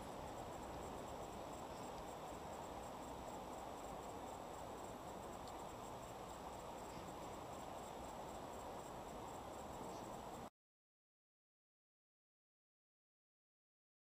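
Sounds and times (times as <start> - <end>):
faint ticks: 0.0 - 8.9
low even hiss: 0.0 - 10.5.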